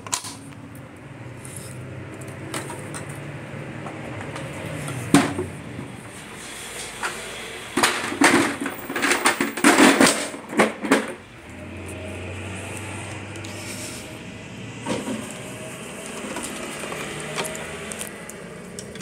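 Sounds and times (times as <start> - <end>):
plastic device clattering: 7.8 - 11.2.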